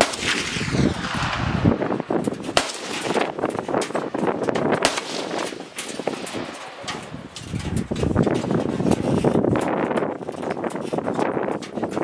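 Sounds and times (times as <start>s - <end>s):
gunshots cracking: 0.0s - 7.1s.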